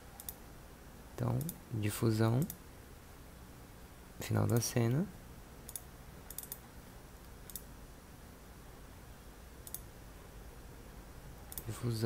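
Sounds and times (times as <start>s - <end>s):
faint low hum: 0.0s - 12.0s
computer mouse clicking: 0.2s - 0.4s, 1.4s - 1.6s, 5.7s - 6.6s, 7.2s - 7.7s, 9.6s - 9.9s, 11.5s - 11.7s.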